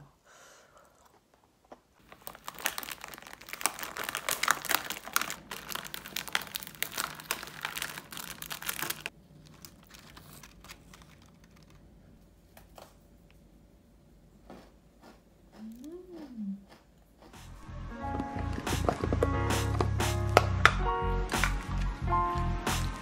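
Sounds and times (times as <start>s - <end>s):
food packaging crinkling: 1.3s - 12.9s.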